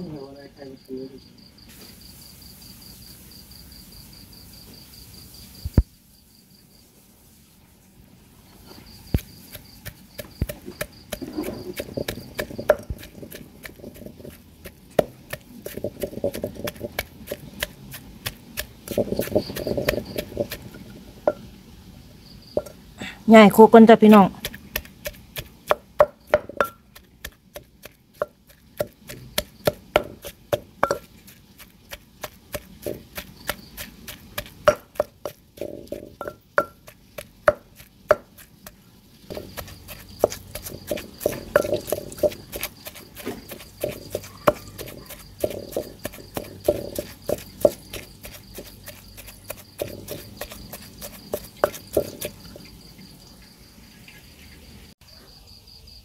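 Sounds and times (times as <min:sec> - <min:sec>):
wooden pestle pounding in mortar: 0:09.2 - 0:21.4, 0:24.3 - 0:52.6.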